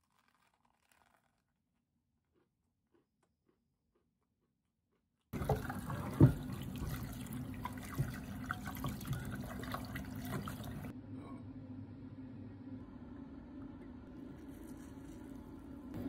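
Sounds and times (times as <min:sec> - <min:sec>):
tap water running into a pot: 0:05.4 - 0:10.9.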